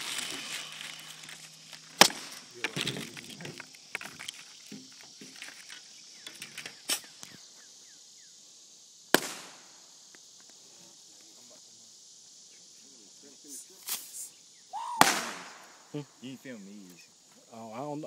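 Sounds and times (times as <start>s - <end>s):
insects chirping: 0.0s - 18.0s
firecracker bangs: 9.1s - 9.8s, 15.0s - 15.8s.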